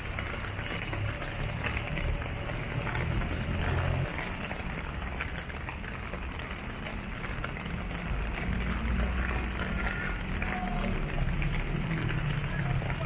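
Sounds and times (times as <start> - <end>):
rain falling: 0.0 - 13.0
road traffic rumble: 0.0 - 13.0.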